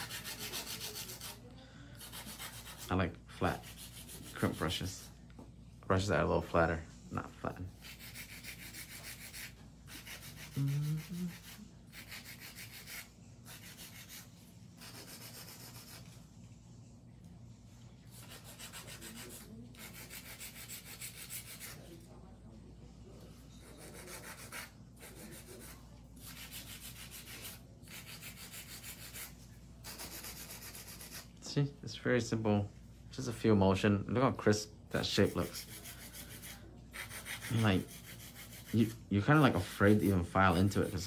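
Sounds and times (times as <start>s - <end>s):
nail file rasping on nails: 0.0s - 1.4s, 2.0s - 2.9s, 3.6s - 4.8s, 7.8s - 16.1s, 18.2s - 21.8s, 23.6s - 31.3s, 35.0s - 41.0s.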